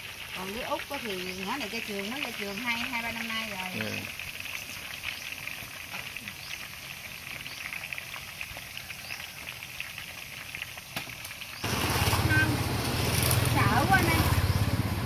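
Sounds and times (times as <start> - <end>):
oil sizzling and popping: 0.0 - 15.0
passing motorbike hum: 11.6 - 15.0.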